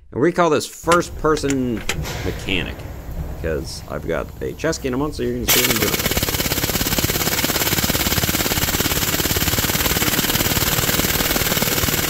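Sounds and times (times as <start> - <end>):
pneumatic impact wrench hammering: 5.5 - 12.0.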